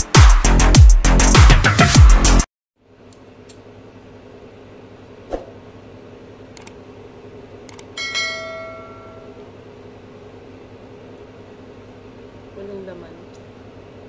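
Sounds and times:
room hum: 2.8 - 14.0
bell ding with ringing tail: 8.0 - 9.4.

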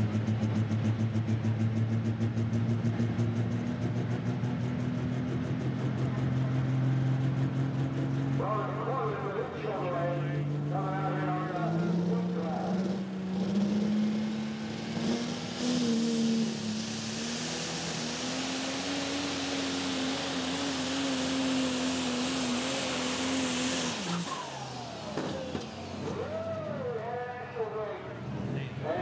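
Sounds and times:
diesel truck engine at full throttle: 0.0 - 29.0.

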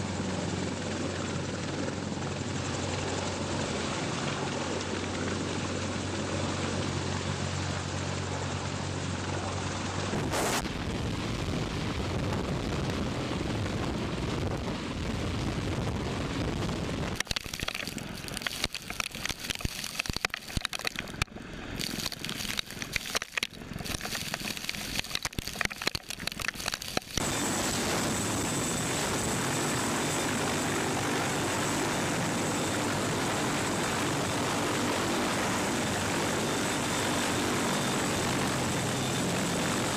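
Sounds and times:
helicopter hovering overhead: 0.0 - 39.9
high turbine whine: 18.0 - 39.9.

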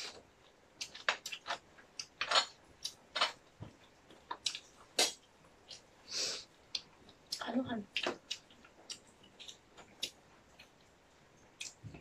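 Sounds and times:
chewing and mouth smacks: 6.7 - 12.0.

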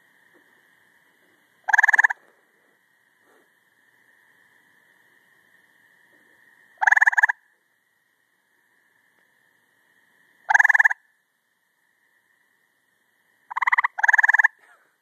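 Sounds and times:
distant frogs trilling: 0.0 - 15.0
treefrog pulsed trill: 1.6 - 2.2, 6.6 - 7.6, 10.3 - 14.7.

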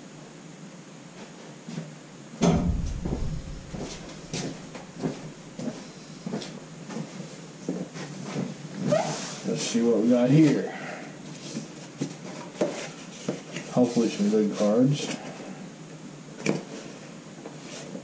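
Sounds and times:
heavy bump of card box: 2.4 - 5.4.

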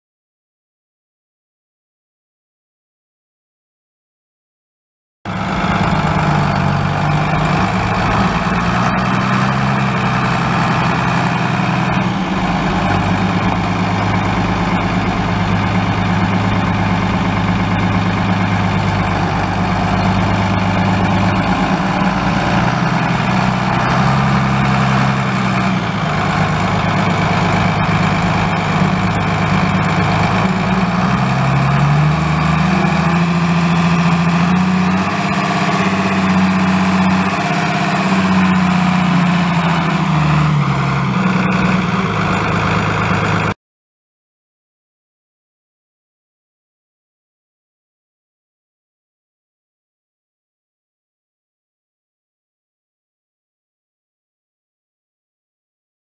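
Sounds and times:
tractor diesel engine running: 5.3 - 43.6.

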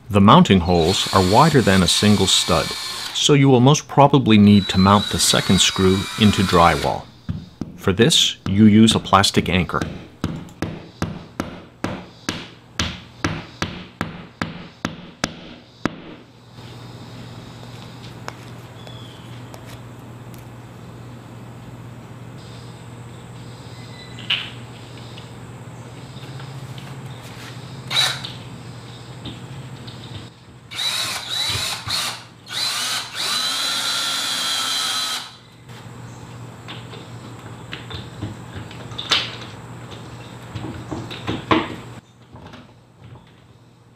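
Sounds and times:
cordless drill motor whine: 0.8 - 3.3, 4.4 - 7.1, 27.9 - 28.3, 30.7 - 35.4.

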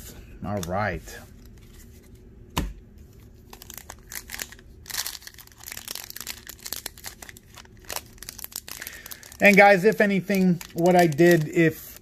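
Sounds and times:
foil pack crinkling: 3.4 - 12.0.

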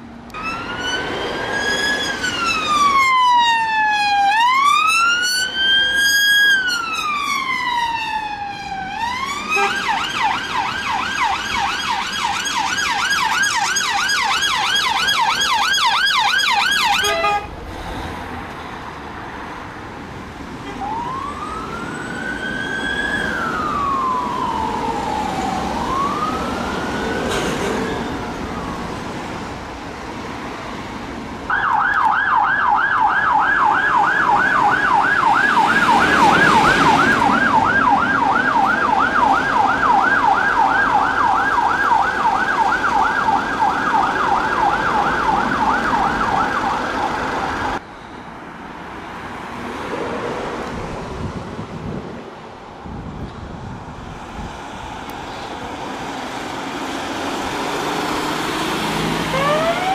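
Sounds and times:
road traffic: 0.0 - 59.9
ambulance yelp siren: 0.3 - 17.5, 20.6 - 29.3, 31.5 - 47.8, 58.1 - 59.9
police siren wailing: 0.3 - 17.5, 20.6 - 29.4, 31.5 - 47.8, 55.6 - 59.9.

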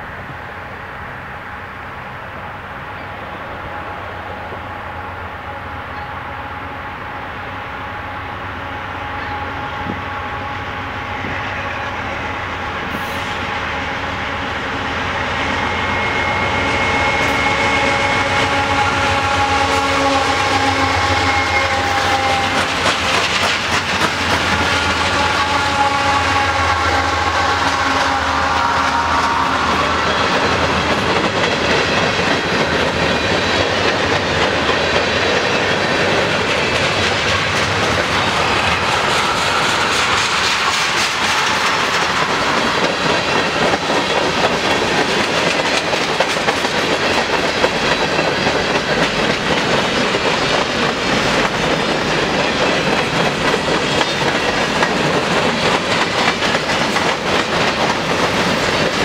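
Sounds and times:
freight train wheels rumbling on rail: 0.0 - 59.0
wheels clacking over rail joints: 20.0 - 25.5, 29.1 - 59.0.

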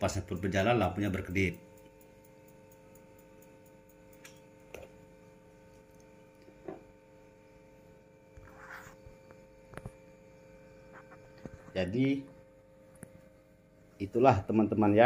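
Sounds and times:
cooling fan humming: 0.0 - 15.0
faint ticks: 0.3 - 5.0.

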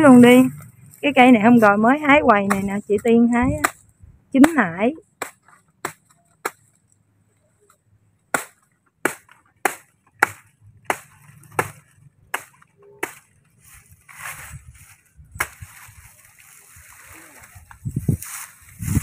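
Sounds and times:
blade chopping plant trunk: 8.3 - 13.4, 15.4 - 15.8.

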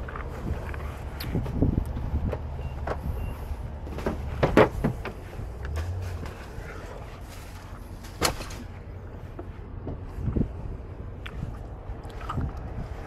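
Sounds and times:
wind rumbling on microphone: 0.0 - 13.0.

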